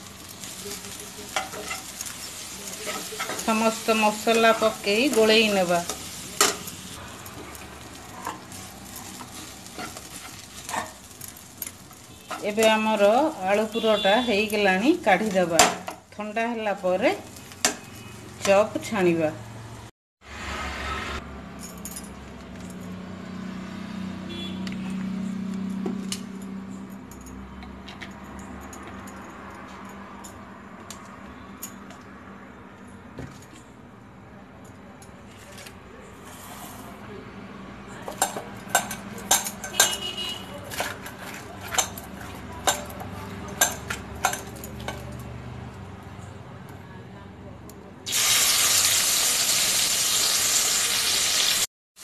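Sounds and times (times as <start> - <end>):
frying sizzle: 0.0 - 19.1, 48.1 - 52.0
spatula scraping a pan: 0.9 - 3.6, 7.4 - 11.1, 39.6 - 43.2.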